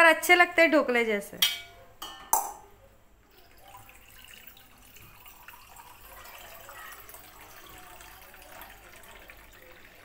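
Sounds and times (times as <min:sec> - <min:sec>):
curry bubbling and sizzling: 0:03.4 - 0:10.0.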